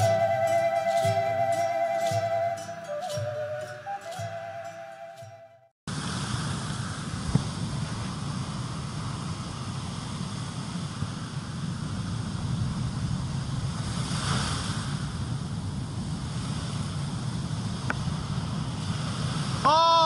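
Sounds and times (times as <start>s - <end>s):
wind rumbling on microphone: 5.9s - 19.7s.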